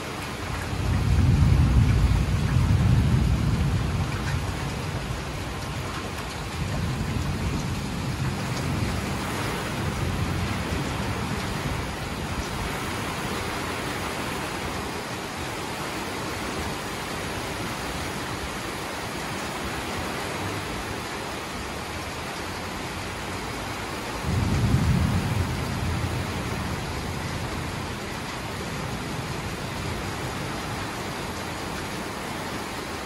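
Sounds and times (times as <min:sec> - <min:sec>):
thunder rumble: 0:00.4 - 0:15.0, 0:24.2 - 0:31.4.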